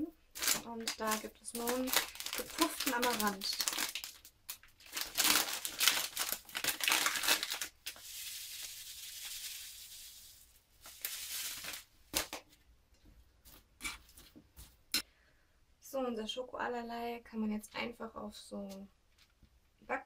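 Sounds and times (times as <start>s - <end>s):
plastic bag crinkling: 0.3s - 12.4s
grains pouring into steel bowl: 8.0s - 11.6s.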